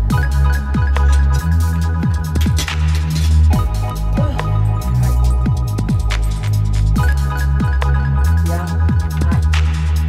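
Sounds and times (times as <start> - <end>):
heavy bass line: 0.0 - 10.0
drum beat: 2.0 - 7.8.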